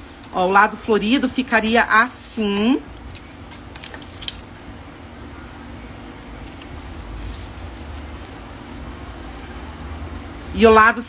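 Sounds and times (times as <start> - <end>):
paper handled and rustling: 2.5 - 8.9.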